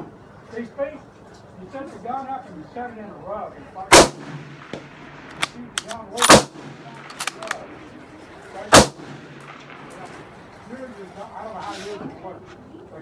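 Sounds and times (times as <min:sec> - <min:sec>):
loud rifle shots: 0:03.9 - 0:07.8, 0:08.7 - 0:10.5
metallic clicks of rifle bolt: 0:05.3 - 0:06.4, 0:07.0 - 0:07.6.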